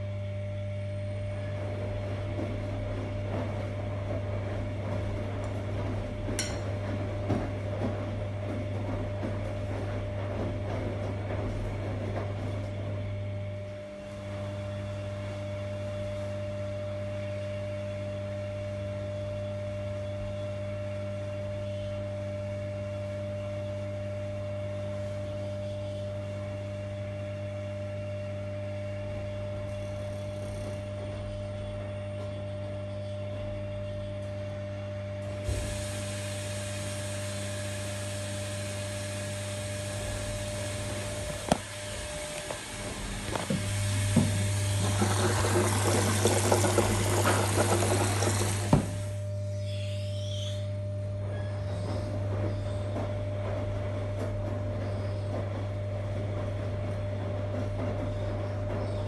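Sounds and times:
washing machine motor hum: 0.0s - 59.0s
laundry tumbling in drum: 1.2s - 13.2s, 42.9s - 49.0s.

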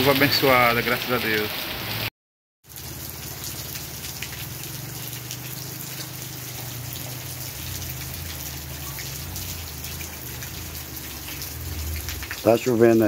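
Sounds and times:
rain drops pattering: 0.0s - 13.0s.

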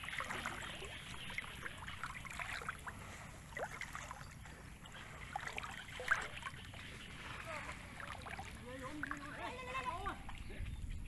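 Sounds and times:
muddy water sloshing: 0.0s - 10.8s.

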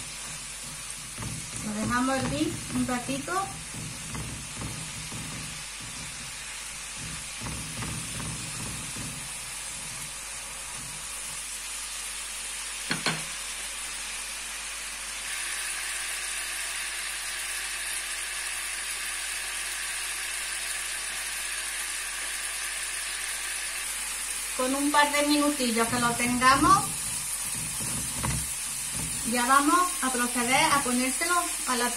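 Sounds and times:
spatula scraping pan: 0.0s - 11.4s, 25.0s - 31.4s
sauce bubbling and sizzling in pan: 0.0s - 31.9s.

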